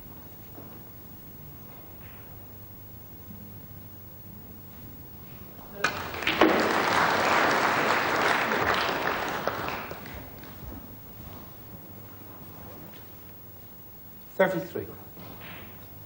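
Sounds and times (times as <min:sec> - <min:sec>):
audience applause: 0:05.7 - 0:10.8.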